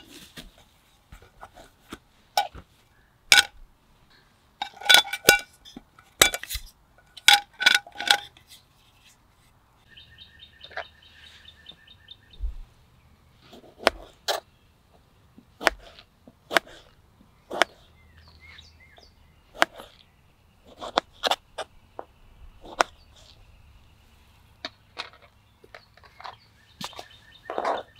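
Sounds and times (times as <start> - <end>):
bird chirping: 9.8 - 15.4, 17.1 - 27.9
knife chopping on plastic board: 15.6 - 16.8.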